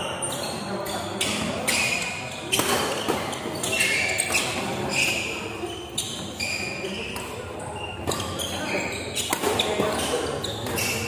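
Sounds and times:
crowd chatter: 0.0s - 11.0s
rackets hitting shuttlecock: 0.8s - 5.5s, 7.0s - 11.0s.

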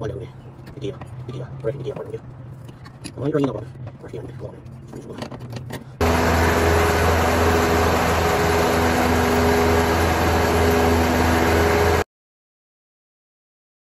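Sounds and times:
riding mower engine running: 6.0s - 12.0s.

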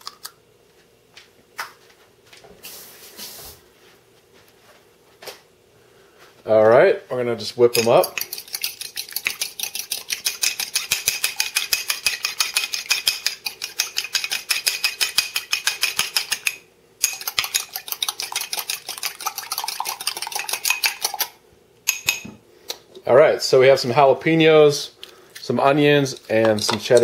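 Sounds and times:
fork beating eggs in a pot: 7.6s - 22.2s, 25.4s - 27.0s.

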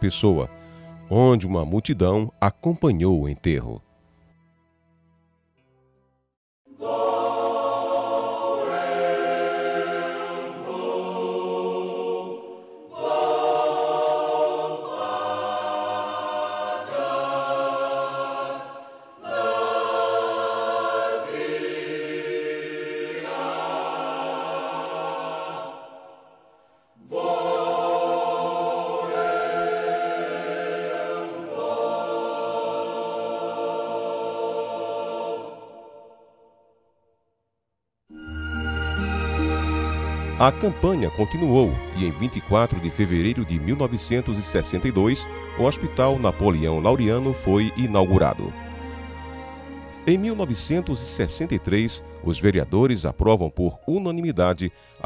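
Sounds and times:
choir singing held chords: 6.7s - 36.9s, 38.1s - 55.0s.

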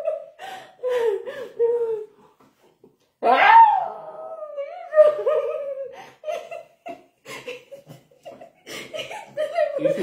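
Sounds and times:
giggling: 4.7s - 10.0s.

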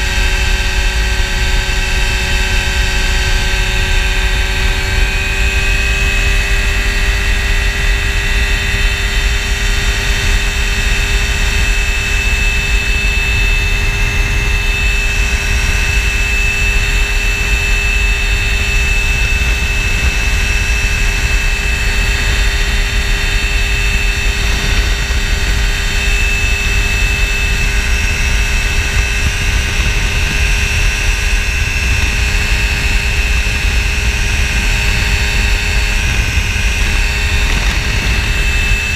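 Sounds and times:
light aircraft engine and propeller: 0.0s - 38.9s
wind buffeting microphone: 0.0s - 38.9s.

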